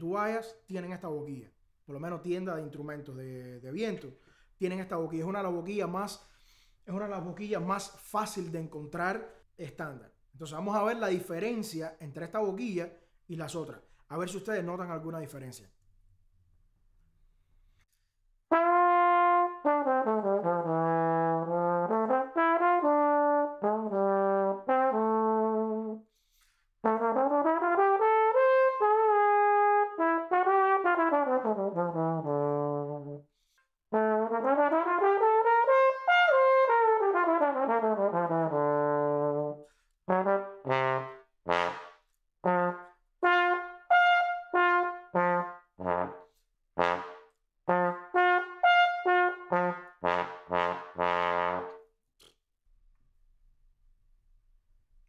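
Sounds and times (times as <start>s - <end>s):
trombone playing: 18.5s - 26.0s, 26.8s - 33.2s, 33.9s - 51.9s.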